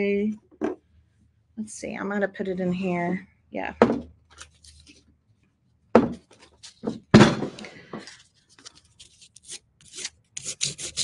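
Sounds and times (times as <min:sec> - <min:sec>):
knocks: 0:06.0 - 0:06.2
sandpaper rubbing on glass jar: 0:09.8 - 0:11.0.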